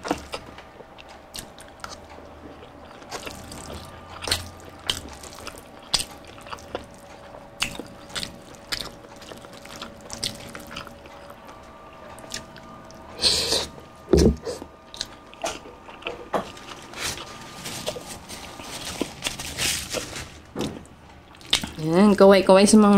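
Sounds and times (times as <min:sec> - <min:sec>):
person chewing wetly: 0:00.0 - 0:20.1, 0:21.2 - 0:21.8.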